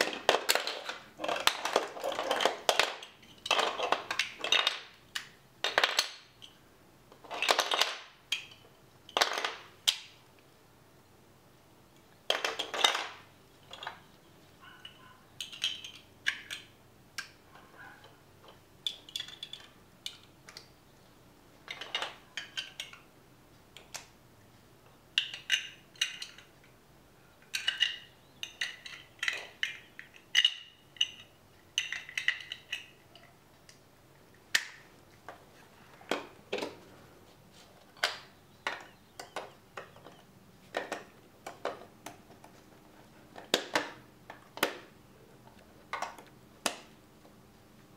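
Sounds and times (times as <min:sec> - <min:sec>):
plastic bricks clicking and clattering: 0:00.0 - 0:10.2, 0:12.2 - 0:14.1, 0:14.8 - 0:17.4, 0:18.4 - 0:20.7, 0:21.6 - 0:23.1, 0:25.1 - 0:26.5, 0:27.4 - 0:33.8, 0:34.5 - 0:35.4, 0:37.9 - 0:42.6, 0:43.3 - 0:46.9.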